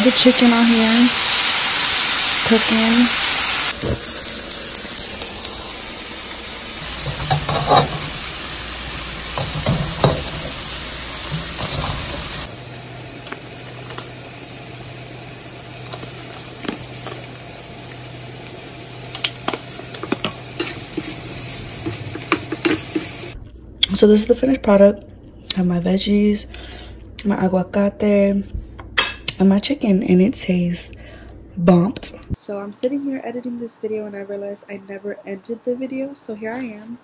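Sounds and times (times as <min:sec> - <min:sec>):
food sizzling in a frying pan: 0:00.0 - 0:23.4.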